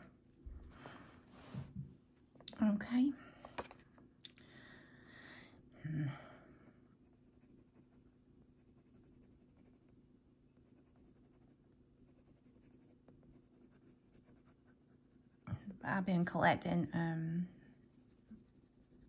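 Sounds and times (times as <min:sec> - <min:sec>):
pencil scratching on paper: 0:06.6 - 0:10.0, 0:10.6 - 0:15.5, 0:17.6 - 0:19.0.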